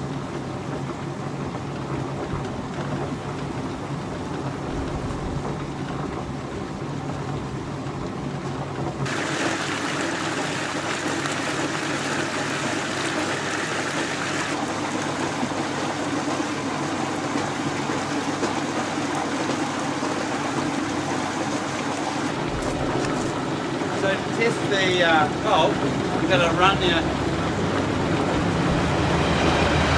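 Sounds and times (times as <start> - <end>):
motor hum: 1.8 - 29.9
pulp slurry churning: 9.0 - 29.2.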